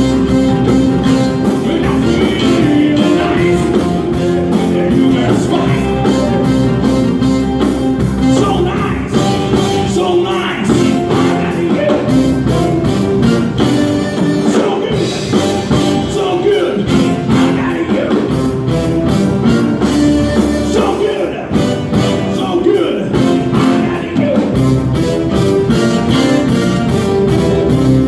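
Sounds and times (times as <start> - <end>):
drums with cymbal beat: 0.0 - 28.0
electric guitar: 0.0 - 28.0
person singing: 0.2 - 6.9, 8.2 - 12.8, 13.6 - 18.4, 20.4 - 24.7.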